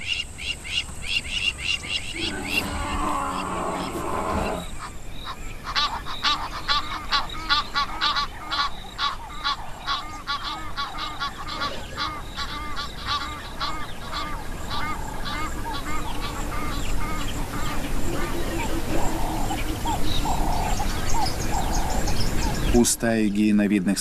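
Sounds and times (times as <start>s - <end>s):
geese honking: 1.5s - 22.7s
low rough sound: 2.1s - 4.8s.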